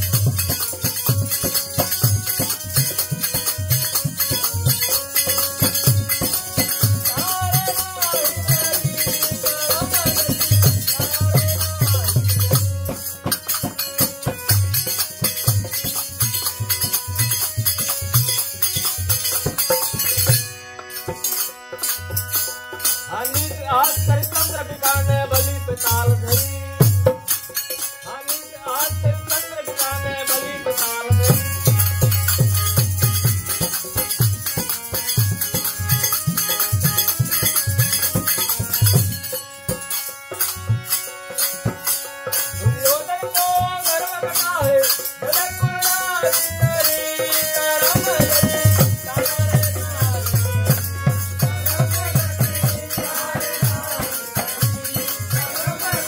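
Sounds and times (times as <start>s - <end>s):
hand drum percussion: 0.0s - 56.0s
harmonium: 0.0s - 56.0s
person singing: 6.2s - 12.6s, 28.1s - 32.1s, 42.8s - 56.0s.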